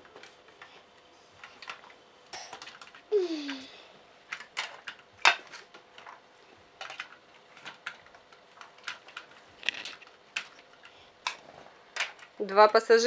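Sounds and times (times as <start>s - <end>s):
plastic toy pieces clicking: 4.3s - 6.2s, 6.8s - 11.4s.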